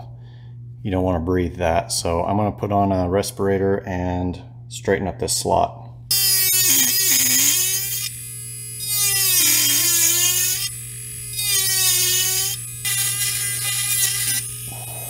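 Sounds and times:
bit grinding wood: 6.1s - 15.0s
rotary tool whining: 6.1s - 15.0s.

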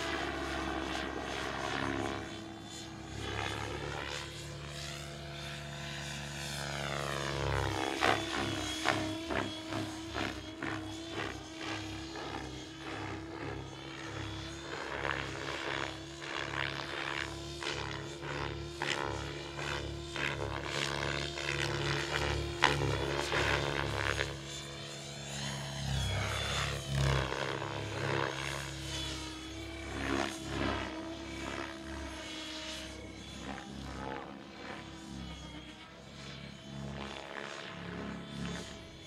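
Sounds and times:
model helicopter rotor: 0.0s - 39.0s.

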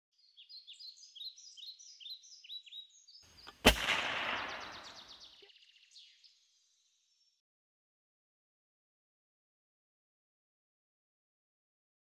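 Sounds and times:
songbird chirping: 0.1s - 7.4s
echoing gunshot: 3.5s - 5.3s.

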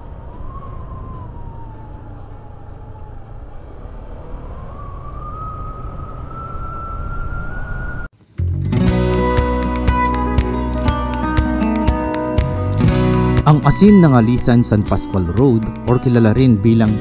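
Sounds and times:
wind rumble on microphone: 0.0s - 8.1s
motorcycle whine: 0.0s - 17.0s.

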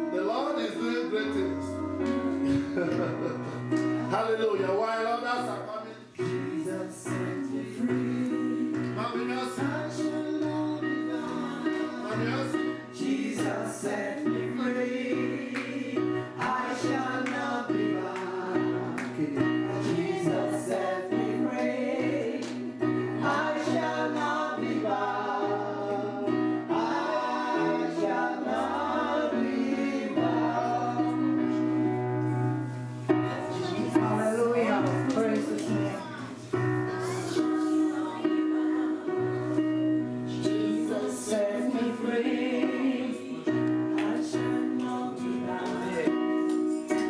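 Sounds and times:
gospel choir singing: 0.0s - 47.0s
keyboard chords with beat: 1.1s - 4.2s.

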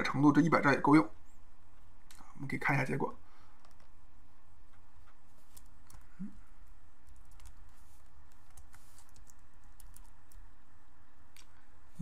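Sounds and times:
low electrical hum: 0.0s - 12.0s
keyboard keystrokes: 7.1s - 7.6s, 8.3s - 10.4s.

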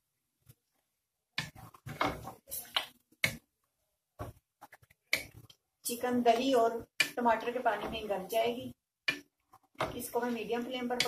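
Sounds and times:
wooden spoon scraping a metal pot: 9.2s - 11.0s.

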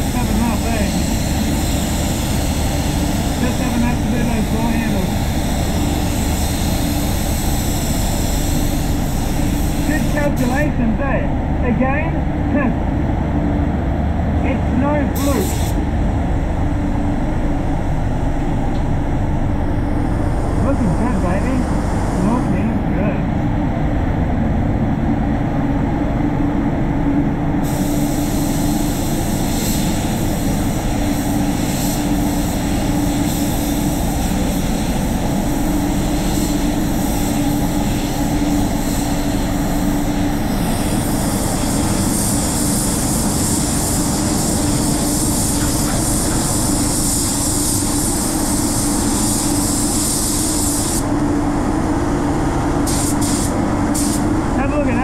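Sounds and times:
spray gun air hissing: 0.0s - 10.8s, 15.0s - 15.9s, 20.7s - 22.6s, 27.6s - 51.3s, 52.7s - 54.5s
air extraction hum: 0.0s - 55.0s.

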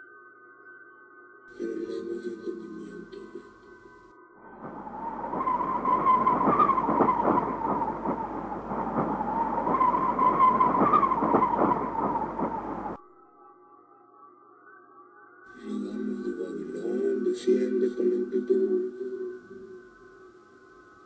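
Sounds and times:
faint music: 1.5s - 13.0s.

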